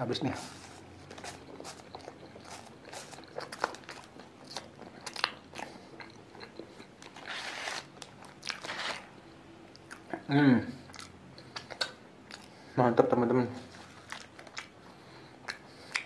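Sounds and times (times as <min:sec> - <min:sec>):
crunching and chewing pastry: 0:00.6 - 0:09.1, 0:09.7 - 0:12.7, 0:13.7 - 0:16.0
paper wrapper rustling: 0:07.2 - 0:09.1.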